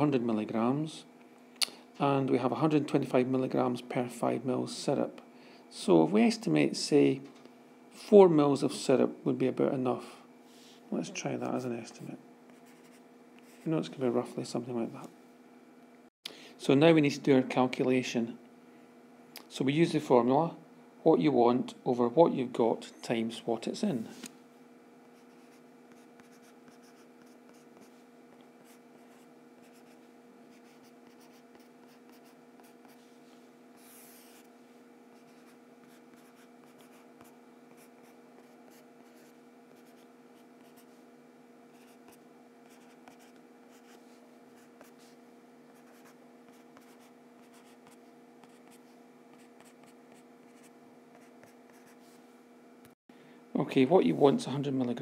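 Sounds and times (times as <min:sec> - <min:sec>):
low electrical hum: 0:00.0 - 0:55.0
marker pen writing on paper: 0:25.1 - 0:27.9, 0:28.6 - 0:33.0, 0:35.2 - 0:40.9, 0:41.8 - 0:44.0, 0:45.7 - 0:52.0.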